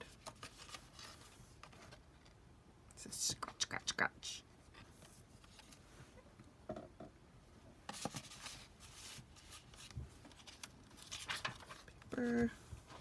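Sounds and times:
paper rustling and ticks: 9.6s - 12.2s.

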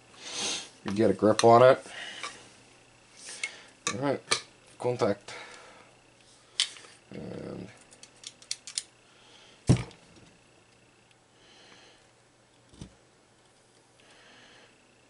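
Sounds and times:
faint hisses: 0.0s - 0.9s.

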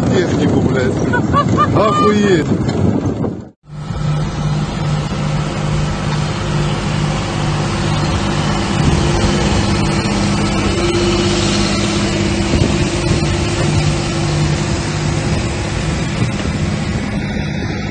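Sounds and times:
tractor diesel engine running: 2.9s - 17.9s.

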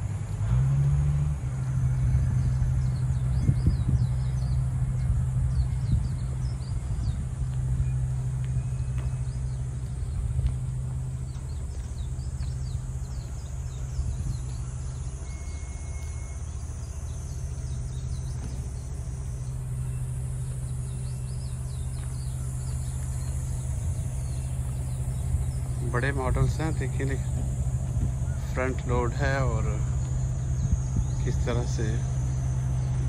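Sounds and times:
engine idling: 0.0s - 33.0s
small birds chirping: 1.6s - 33.0s.

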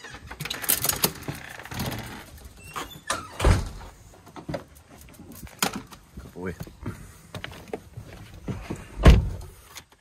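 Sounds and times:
doors opening and shutting: 0.0s - 4.8s, 8.5s - 10.0s
heavy door thud: 3.3s - 3.9s, 9.0s - 9.4s.

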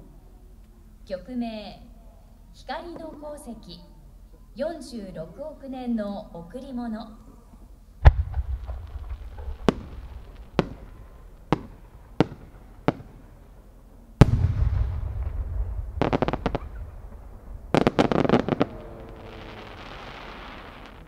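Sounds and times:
firework shell boom and rumble: 8.0s - 13.3s, 14.2s - 19.2s
firework cracks: 8.0s - 21.0s.

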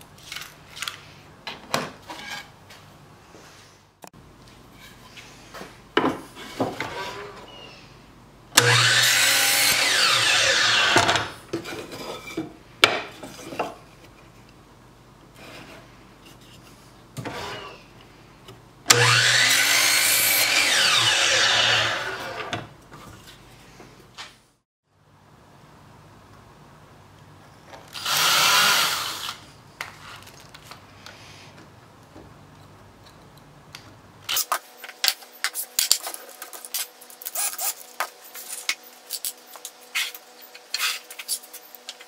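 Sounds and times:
miter saw cutting wood: 8.6s - 11.3s, 18.9s - 22.6s, 28.0s - 29.4s.

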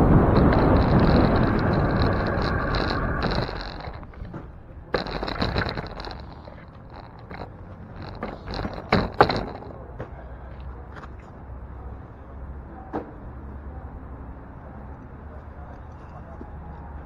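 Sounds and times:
clicks and rattles: 0.0s - 10.1s
low steady street rumble: 0.0s - 17.0s.

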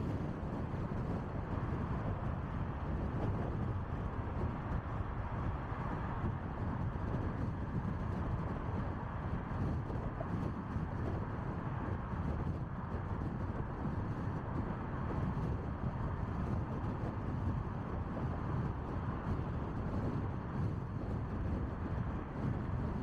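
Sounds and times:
car road and wind noise: 0.0s - 23.0s.

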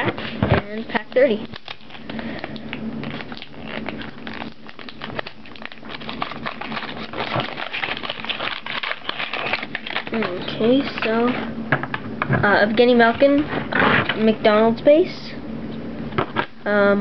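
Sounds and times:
card wrapper crinkling: 0.1s - 11.5s.

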